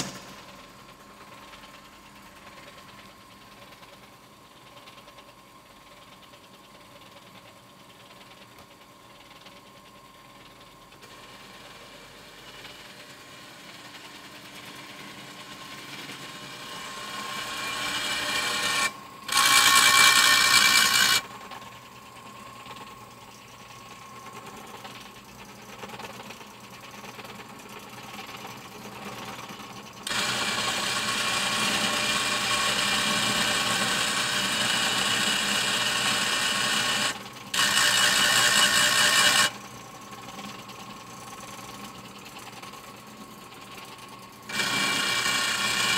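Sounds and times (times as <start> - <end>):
power shear running: 14.4 - 21.4, 30.0 - 39.6, 44.5 - 45.9.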